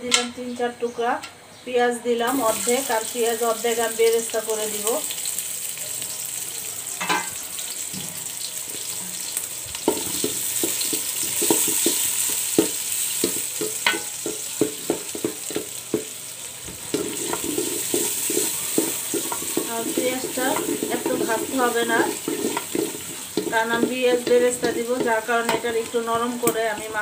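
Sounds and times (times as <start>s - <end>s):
onions sizzling in oil: 2.3s - 27.0s
wooden spatula scraping pot: 16.7s - 27.0s.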